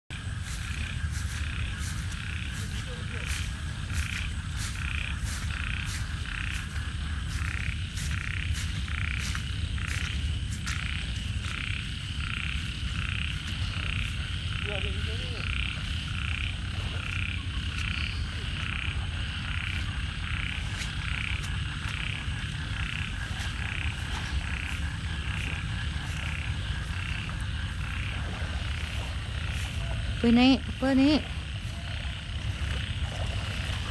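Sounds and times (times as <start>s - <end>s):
frogs croaking: 0.1s - 33.9s
low rumble: 15.4s - 33.9s.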